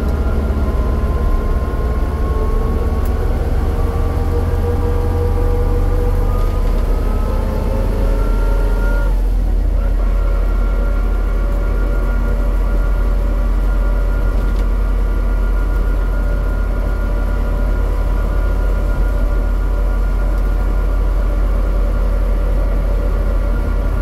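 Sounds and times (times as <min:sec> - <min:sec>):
vehicle whine rising in pitch: 0:00.0 - 0:24.0
low wind rumble on microphone: 0:09.3 - 0:24.0.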